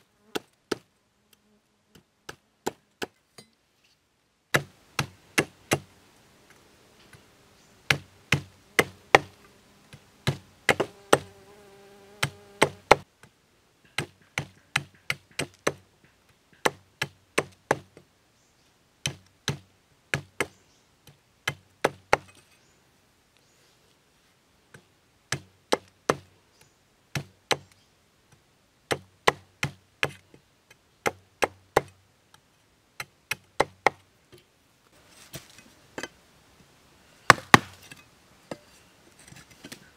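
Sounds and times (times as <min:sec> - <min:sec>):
machete chopping wood: 0:04.5 - 0:05.9, 0:07.9 - 0:09.4, 0:10.2 - 0:11.3, 0:12.2 - 0:13.1, 0:14.0 - 0:15.8, 0:16.6 - 0:17.9, 0:19.0 - 0:20.6, 0:21.5 - 0:22.4, 0:28.9 - 0:30.2, 0:31.0 - 0:32.0, 0:37.3 - 0:38.0.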